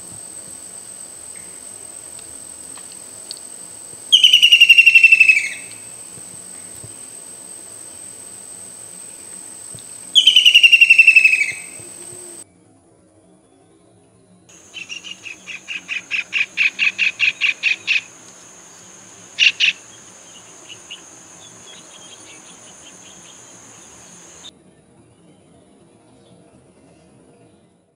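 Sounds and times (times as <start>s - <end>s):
kingfisher rattling call: 4.1s - 5.8s, 10.2s - 12.0s, 14.6s - 24.5s
kingfisher sharp notes: 14.6s - 24.5s.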